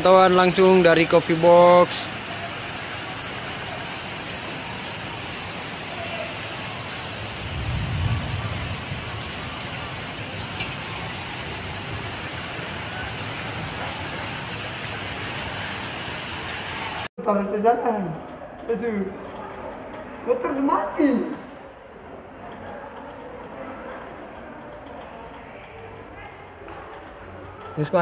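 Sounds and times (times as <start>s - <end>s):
heavy rain hissing: 0.0s - 17.1s
low rumble: 7.4s - 9.4s.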